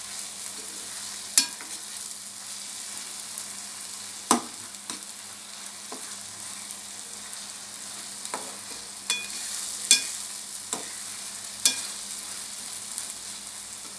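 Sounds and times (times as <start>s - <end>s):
sauce sizzling in a pan: 0.0s - 13.9s
spatula scraping a pan: 4.9s - 13.9s.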